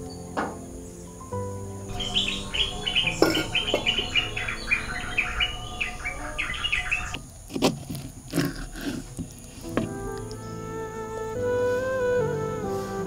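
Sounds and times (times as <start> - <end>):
bird chirping: 0.8 - 7.4.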